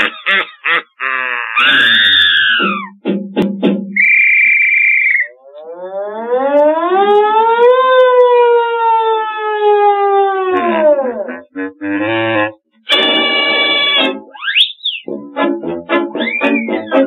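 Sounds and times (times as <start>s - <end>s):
fire engine siren wailing: 5.3s - 12.2s.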